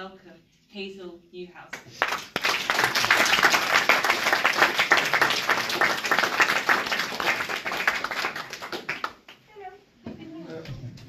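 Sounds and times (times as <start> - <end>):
crowd applauding: 1.9 - 9.4.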